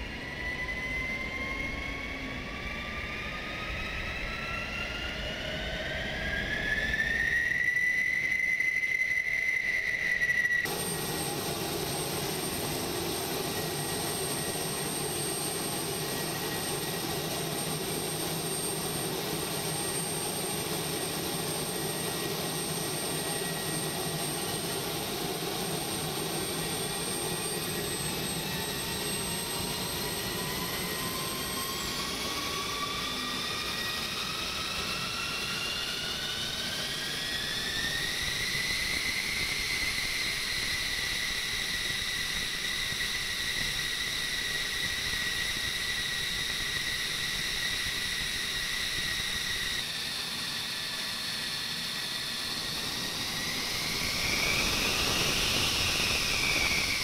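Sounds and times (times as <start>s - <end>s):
jet engine turbine whine: 0.0s - 57.0s.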